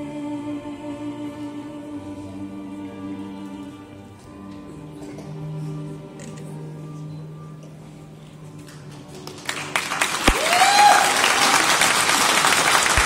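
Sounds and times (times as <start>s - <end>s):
audience applause: 8.7s - 13.0s
person whooping: 10.3s - 11.3s.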